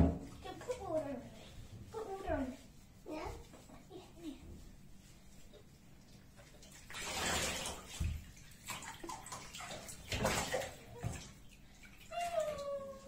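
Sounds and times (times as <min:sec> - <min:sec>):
water splashing into bathtub: 0:05.5 - 0:13.0.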